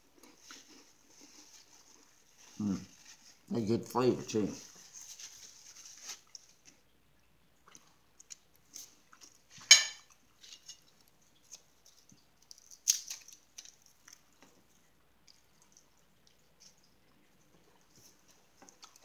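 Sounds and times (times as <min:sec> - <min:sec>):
crackers clicking and crunching: 0:07.7 - 0:16.9
sharp cracker crackles: 0:10.4 - 0:14.6.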